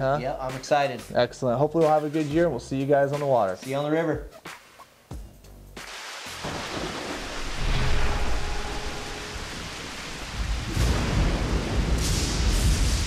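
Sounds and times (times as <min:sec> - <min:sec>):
rain hissing: 0:05.8 - 0:13.0
low thunder rumbles: 0:06.4 - 0:13.0.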